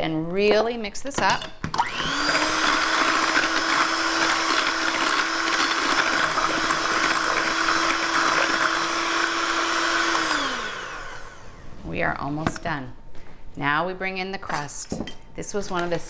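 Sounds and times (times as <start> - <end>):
electric hand mixer whisking: 1.8 - 11.6.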